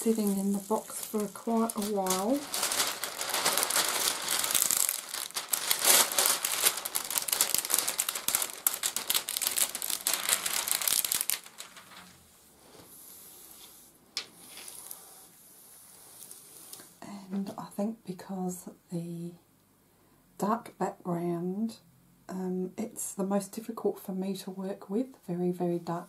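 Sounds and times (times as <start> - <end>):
plastic film crinkling: 0.0 - 12.2
sharp plastic crackle: 0.0 - 12.2.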